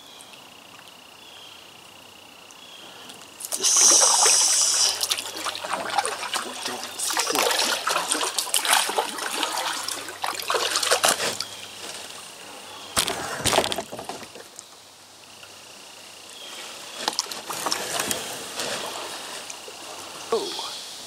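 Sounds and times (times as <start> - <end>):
paddle splashing water: 3.4 - 12.2.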